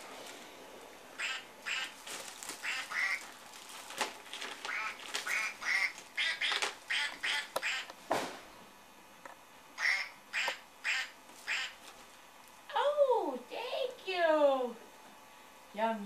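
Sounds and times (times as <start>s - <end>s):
toy duck quacking: 1.2s - 1.9s, 2.6s - 3.2s, 4.7s - 7.9s, 9.8s - 11.8s.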